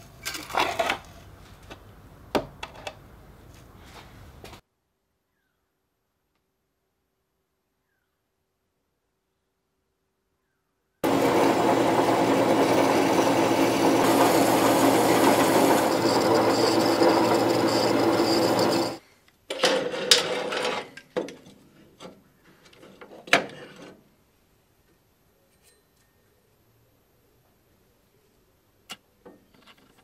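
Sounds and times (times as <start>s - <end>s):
band saw cutting steel: 11.0s - 19.0s.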